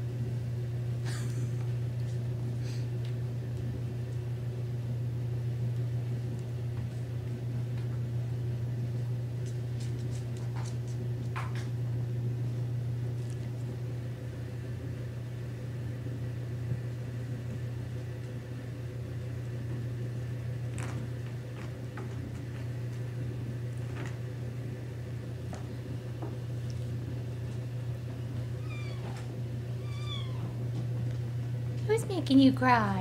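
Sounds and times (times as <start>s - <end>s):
low mechanical hum: 0.0s - 33.0s
kittens scampering on floor: 9.4s - 11.7s, 20.6s - 24.3s, 25.4s - 31.8s.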